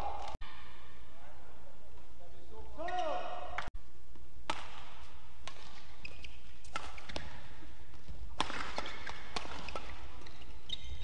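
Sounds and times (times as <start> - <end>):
racket hitting shuttlecock: 4.4 - 11.0
shoes squeaking on floor: 5.7 - 8.0, 8.8 - 11.0.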